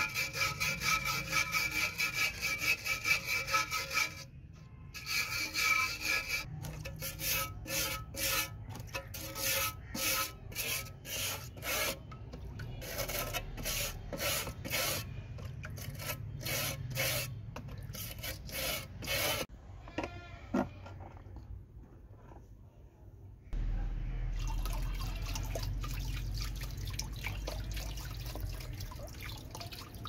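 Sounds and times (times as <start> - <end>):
wire brush scrubbing metal: 0.0 - 19.5.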